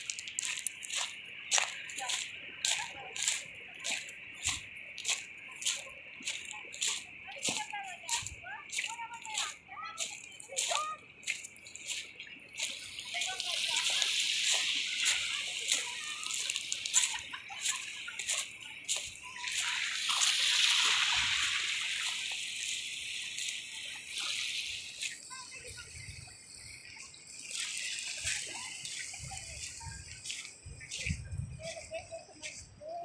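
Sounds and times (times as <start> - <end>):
waves washing over pebbles: 0.0 - 25.5
footsteps on pebbles: 0.0 - 25.6.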